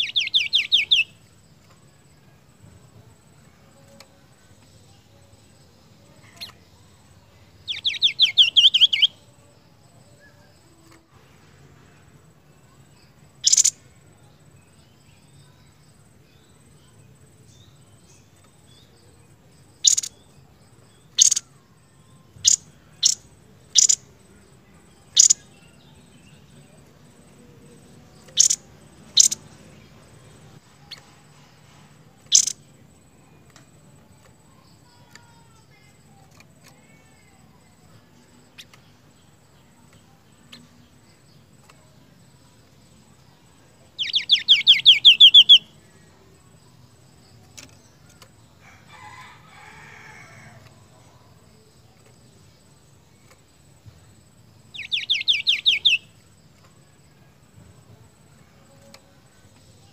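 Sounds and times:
songbird sharp call notes: 0:00.0 - 0:01.2, 0:07.6 - 0:09.2, 0:13.4 - 0:13.8, 0:19.8 - 0:20.3, 0:21.1 - 0:21.5, 0:22.4 - 0:24.1, 0:25.1 - 0:25.5, 0:28.2 - 0:29.4, 0:32.2 - 0:32.6, 0:43.9 - 0:45.8, 0:54.7 - 0:56.2
bird rattling trill: 0:13.4 - 0:13.7, 0:19.8 - 0:20.1, 0:25.2 - 0:25.4, 0:28.4 - 0:29.5, 0:32.3 - 0:32.6.

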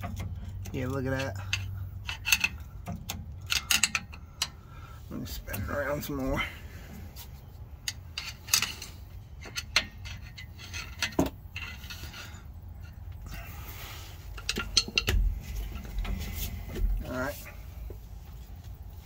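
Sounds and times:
metallic gear clinks and scrapes: 0:07.9 - 0:17.6.

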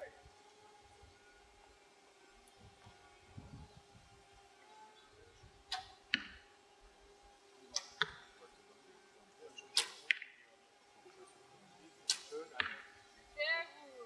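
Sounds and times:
arrows striking: 0:05.6 - 0:06.4, 0:07.7 - 0:08.3, 0:09.6 - 0:10.4, 0:12.0 - 0:12.9
bow strings snapping: 0:05.7 - 0:06.3, 0:07.8 - 0:08.2, 0:09.7 - 0:10.3, 0:12.1 - 0:12.8.

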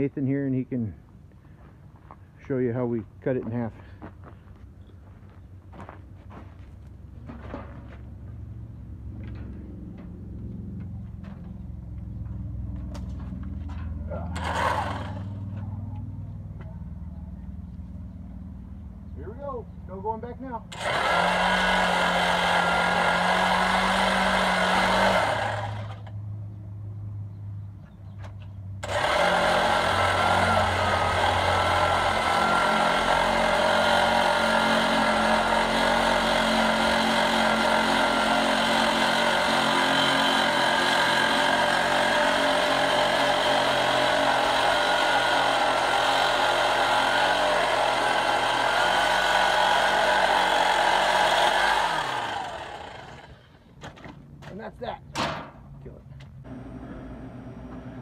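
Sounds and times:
power saw cutting: 0:14.2 - 0:15.4, 0:20.7 - 0:26.1, 0:28.8 - 0:53.5.

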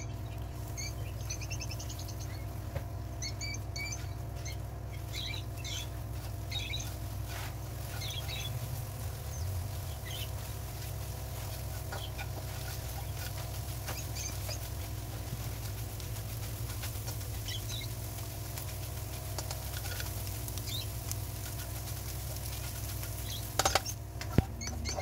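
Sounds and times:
steady low hum: 0:00.0 - 0:25.0
high squeaky chirps: 0:03.2 - 0:08.6, 0:22.6 - 0:25.0
spatula scraping a wok: 0:06.1 - 0:09.0, 0:10.3 - 0:15.2, 0:18.4 - 0:24.0.

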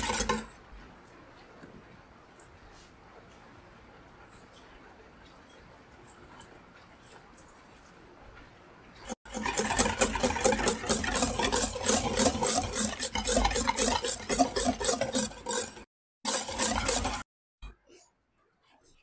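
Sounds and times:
whisk beating eggs in a bowl: 0:00.0 - 0:00.6, 0:09.1 - 0:17.3.

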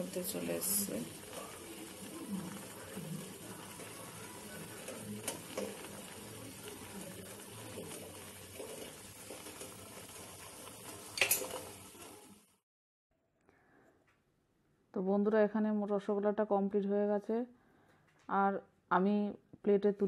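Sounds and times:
syrup bubbling in a pot: 0:00.0 - 0:12.6
metal utensils clinking: 0:10.9 - 0:12.0.

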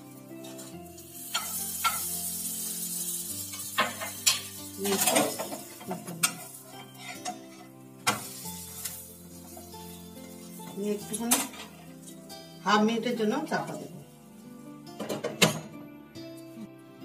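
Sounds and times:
butter sizzling in a pan: 0:00.0 - 0:15.0
spoon tapping and scraping pan: 0:01.3 - 0:02.2, 0:03.5 - 0:09.6
utensils knocking against pan: 0:01.3 - 0:02.2, 0:03.5 - 0:08.9, 0:11.1 - 0:11.8, 0:15.0 - 0:15.7.

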